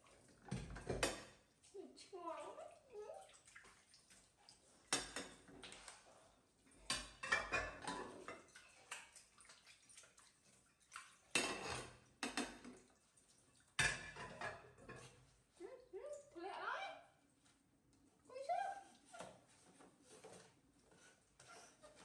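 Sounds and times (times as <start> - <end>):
dishes clinking in a sink: 0.4 - 1.4, 4.9 - 5.8, 6.8 - 9.2, 11.3 - 12.9, 13.8 - 15.3
dishes clattering: 0.5 - 1.4, 4.9 - 5.5, 6.8 - 8.6, 11.3 - 12.8, 13.8 - 15.2
water sounds: 1.6 - 7.3.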